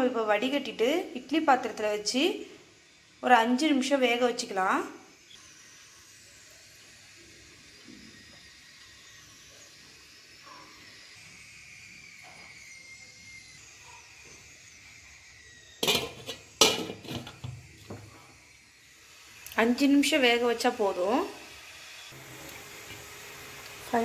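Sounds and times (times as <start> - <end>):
faint high whistles: 5.1 - 15.8
metal cooking pot clattering: 15.8 - 17.5.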